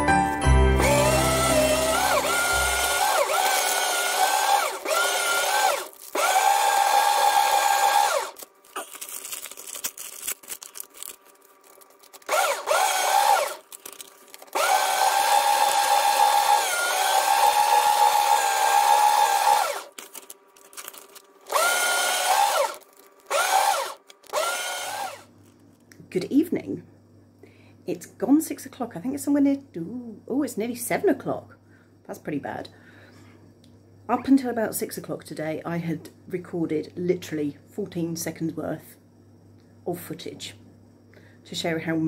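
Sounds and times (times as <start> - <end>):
paper shredder motor whine: 0.7 - 25.4.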